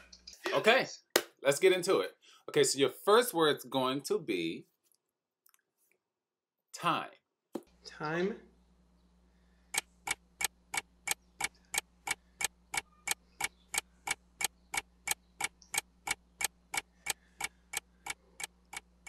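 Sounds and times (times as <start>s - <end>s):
clock-like ticking: 9.7s - 19.0s.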